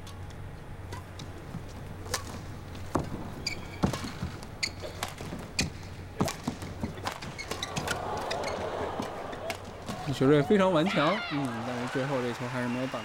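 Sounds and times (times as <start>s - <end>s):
shoes squeaking on court: 0.9s - 10.1s.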